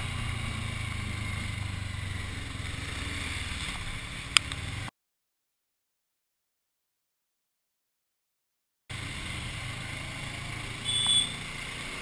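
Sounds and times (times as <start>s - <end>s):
motorcycle engine running: 0.0s - 4.9s, 8.9s - 12.0s.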